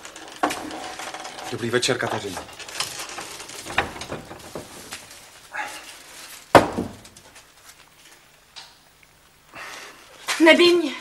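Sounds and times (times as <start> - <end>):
rustling: 0.0 - 8.5
footsteps: 2.1 - 8.3
bag thumping down: 6.4 - 7.2.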